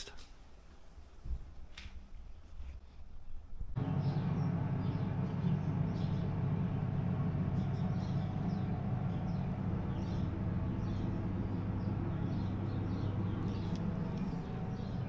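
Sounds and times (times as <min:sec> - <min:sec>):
deep mechanical hum: 0:03.6 - 0:15.0.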